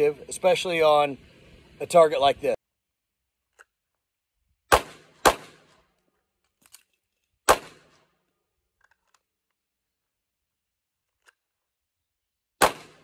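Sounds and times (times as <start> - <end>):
handgun shots with echo: 4.7 - 5.8, 7.5 - 8.1, 12.6 - 13.0.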